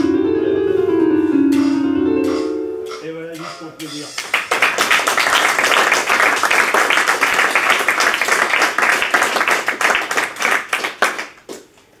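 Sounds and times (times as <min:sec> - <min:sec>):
audience applauding: 0:04.2 - 0:11.7.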